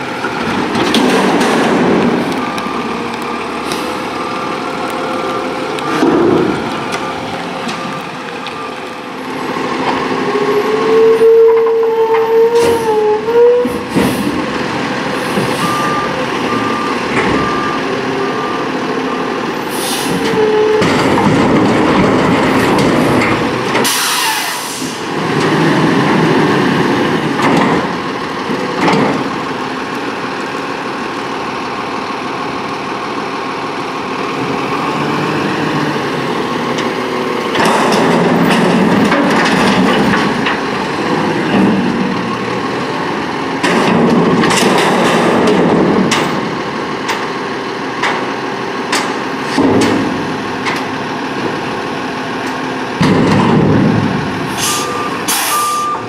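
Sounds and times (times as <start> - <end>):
truck engine revving: 0.0 - 56.0
reversing alarm beeping: 2.2 - 6.5, 15.5 - 20.9, 54.6 - 56.0
air brake hiss: 19.7 - 20.2, 23.8 - 25.0, 54.5 - 55.9.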